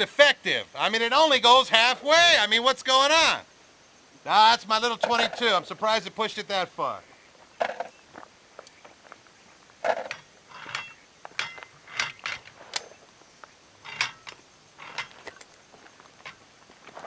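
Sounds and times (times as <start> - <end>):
steel paddles clanking on metal post: 9.8 - 12.9, 13.8 - 15.4.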